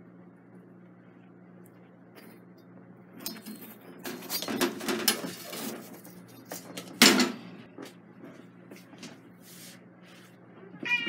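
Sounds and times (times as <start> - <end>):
steady low hum: 0.0 - 11.0
rustling and clattering: 3.3 - 9.2.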